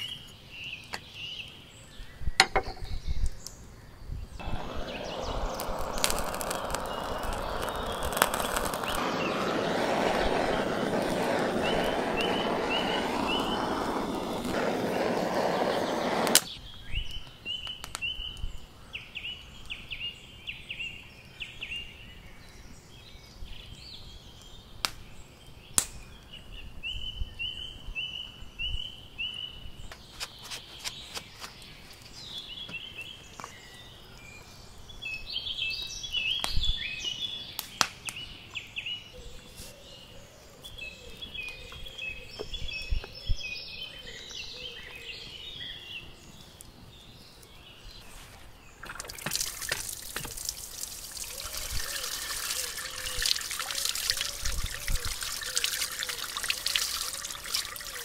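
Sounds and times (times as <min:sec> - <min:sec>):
songbirds chirping and singing: 0:00.0 - 0:58.0
loud rushing noise: 0:04.4 - 0:16.5.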